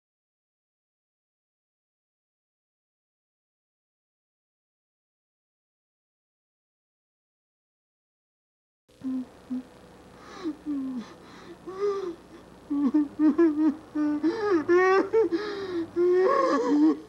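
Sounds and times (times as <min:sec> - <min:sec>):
man sobbing and whimpering: 0:10.3 - 0:17.0.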